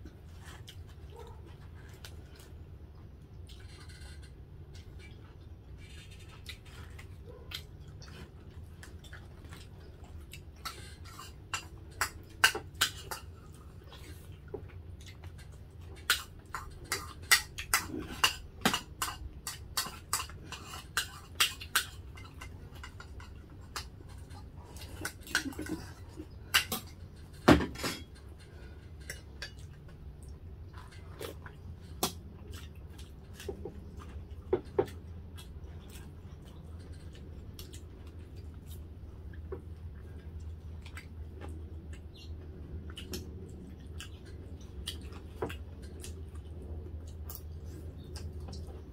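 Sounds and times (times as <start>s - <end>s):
low background hum: 0.0s - 48.9s.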